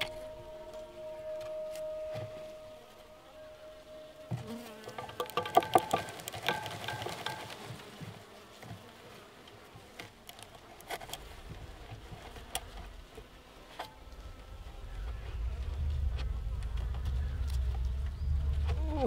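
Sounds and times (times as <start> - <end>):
honey bees buzzing: 0.0 - 19.0
taps and scrapes on wooden box: 4.3 - 8.9.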